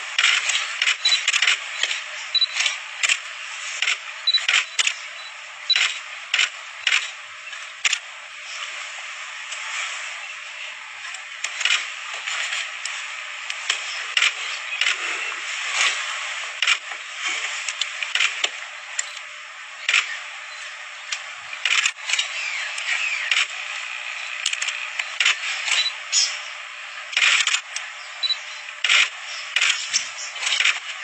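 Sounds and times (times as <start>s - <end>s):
sharp clicks: 0.2s - 7.2s, 19.8s - 20.2s, 24.2s - 25.9s, 27.1s - 30.8s.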